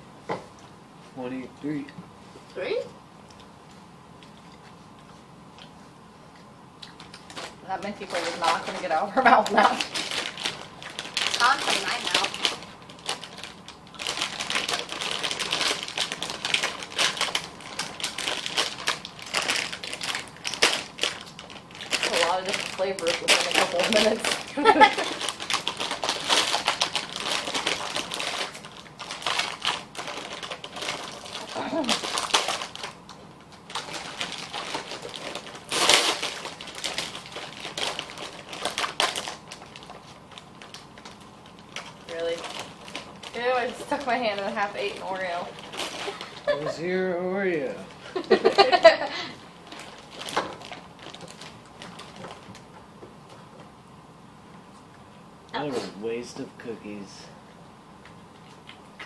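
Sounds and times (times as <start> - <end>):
plastic packaging crinkling: 6.9 - 53.6.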